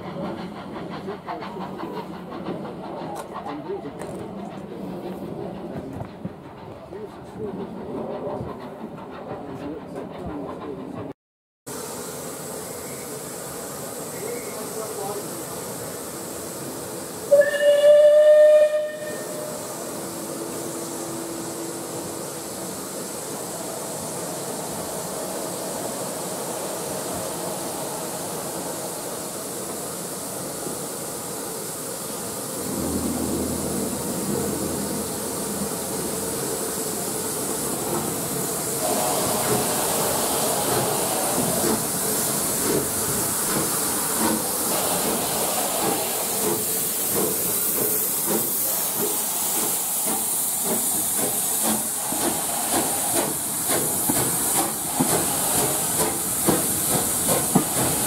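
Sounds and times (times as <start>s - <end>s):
steam hissing: 0.0s - 9.9s, 11.7s - 58.0s
steam locomotive rumbling: 0.0s - 58.0s
steam whistle blast: 17.3s - 19.8s.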